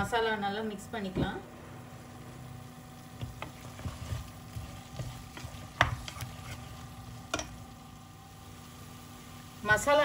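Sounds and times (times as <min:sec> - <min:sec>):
low frying sizzle: 0:00.0 - 0:10.0
wooden spatula scraping pan: 0:03.3 - 0:06.9.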